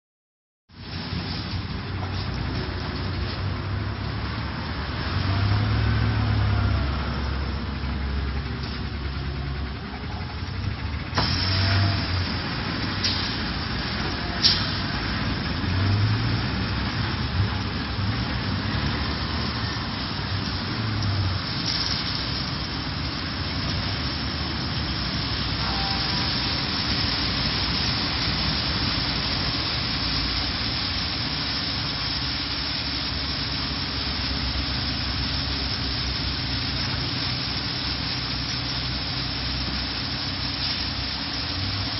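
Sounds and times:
bus engine rumbling: 0.7s - 41.9s
water spray hissing: 11.0s - 41.9s.

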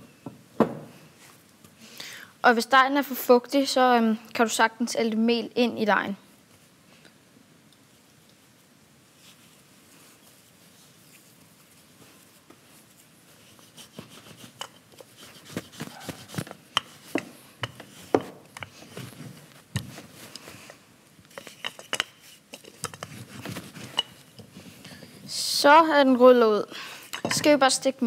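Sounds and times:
rolling pin rolling dough: 12.3s - 20.2s.

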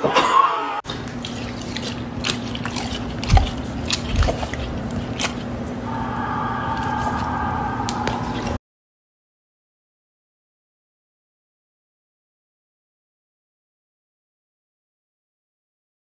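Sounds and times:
steady low hum: 1.0s - 8.6s
dog crunching dry food: 1.2s - 5.7s
steady high whine: 5.7s - 8.6s
crowd cheering on television: 5.9s - 8.4s.

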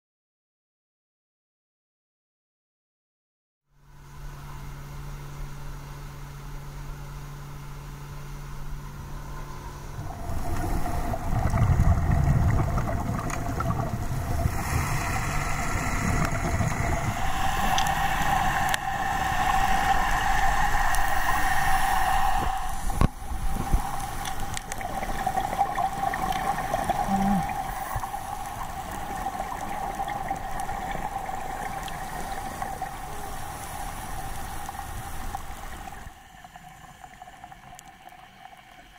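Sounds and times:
mid-pitched underwater hum: 3.7s - 38.9s
underwater rushing and bubbling: 8.6s - 38.9s.

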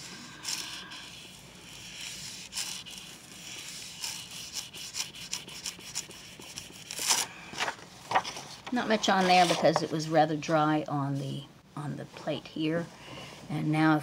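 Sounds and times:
paper peeling crackles and rustles: 6.1s - 9.8s.

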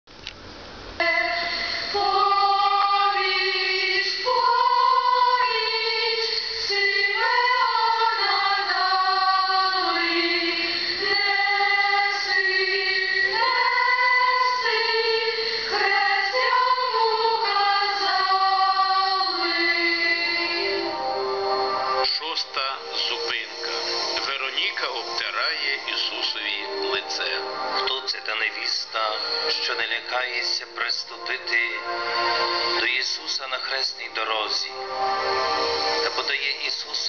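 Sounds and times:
choir singing a hymn: 1.0s - 30.6s.

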